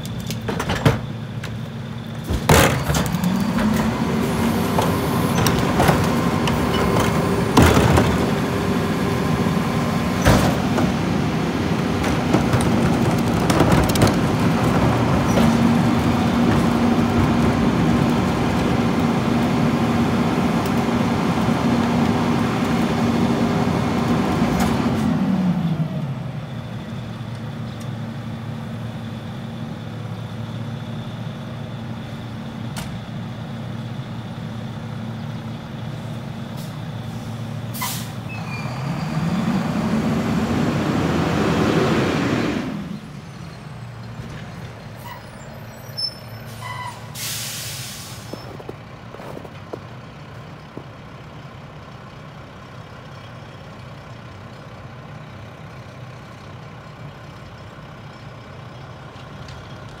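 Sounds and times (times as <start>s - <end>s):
garbage truck engine: 0.0s - 60.0s
air brake hiss: 36.6s - 38.6s, 46.4s - 48.4s.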